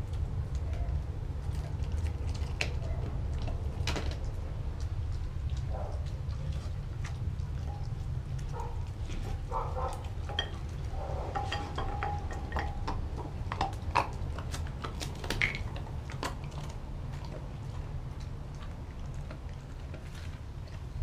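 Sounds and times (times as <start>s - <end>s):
dog chewing and licking: 0.0s - 21.0s
teeth clicking on glass bowl: 9.8s - 16.5s.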